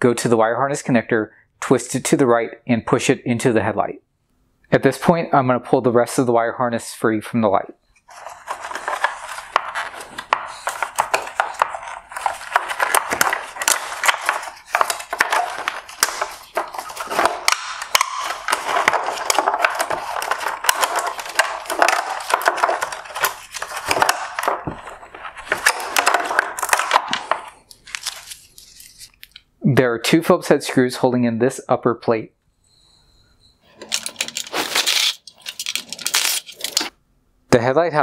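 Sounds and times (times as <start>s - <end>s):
wires and plastic scraping: 8.0s - 29.5s, 33.7s - 36.9s.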